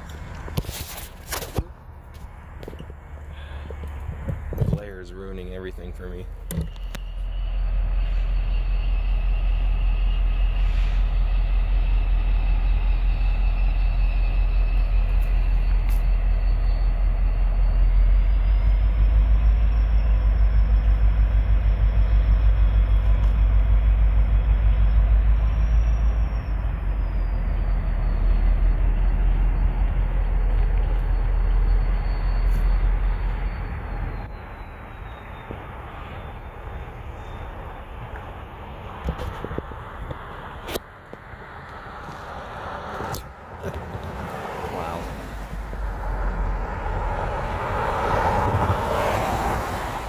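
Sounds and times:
faint high whine: 0.0 - 40.8
diesel locomotive rumbling: 0.0 - 50.0.

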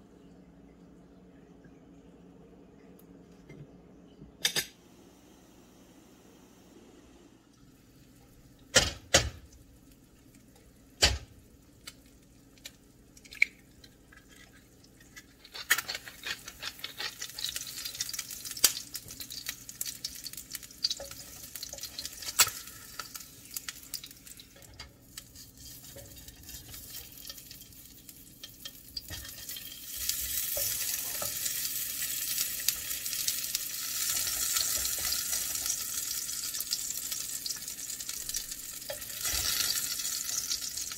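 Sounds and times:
oil sizzling in frying pan: 15.3 - 40.9.

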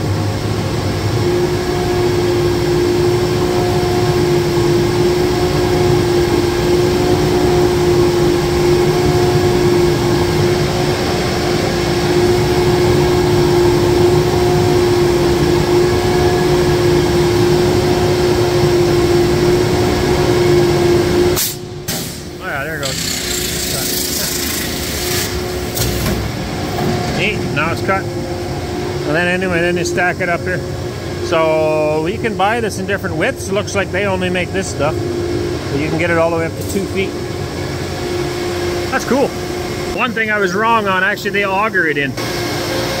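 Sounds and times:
machinery humming: 0.0 - 43.0.

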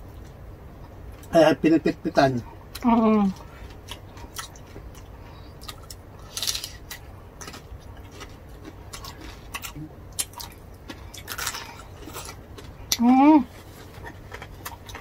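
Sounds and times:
wet chewing and lip-smacking: 3.4 - 13.0, 13.8 - 15.0.

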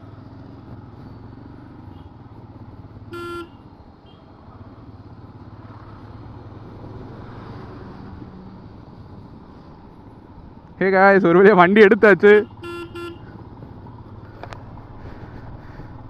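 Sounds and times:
road traffic rumbling: 0.0 - 16.0
vehicle horn toot: 3.1 - 4.3, 12.3 - 13.3.

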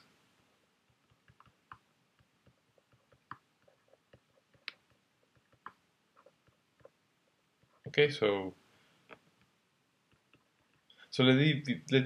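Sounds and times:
stylus tapping on tablet screen: 0.8 - 7.0.

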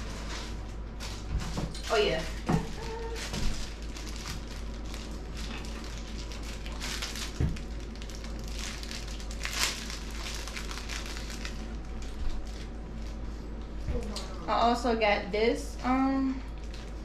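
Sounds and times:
plastic bag crinkling: 0.0 - 14.1, 16.3 - 17.0.

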